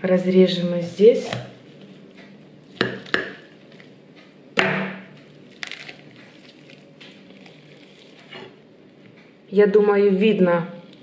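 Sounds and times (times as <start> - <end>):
cracks and crunches: 2.1 - 4.3, 5.1 - 9.3.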